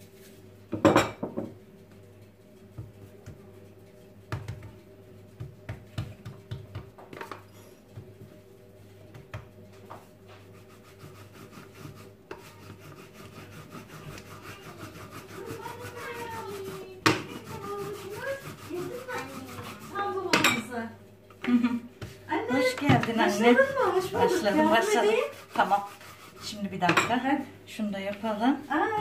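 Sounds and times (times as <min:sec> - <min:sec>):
hands patting dough: 0:01.8 - 0:07.2, 0:07.8 - 0:20.3
rolling pin rubbing strokes: 0:09.6 - 0:20.3, 0:22.1 - 0:29.0.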